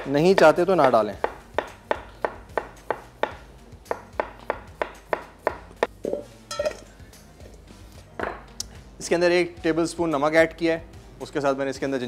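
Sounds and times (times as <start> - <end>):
knife chopping on wooden board: 0.0 - 5.9.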